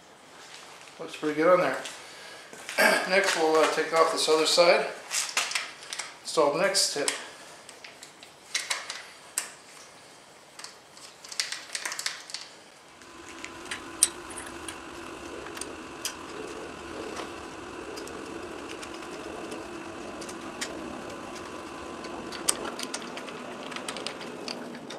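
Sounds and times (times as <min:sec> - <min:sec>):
steady hum: 0:12.8 - 0:24.9.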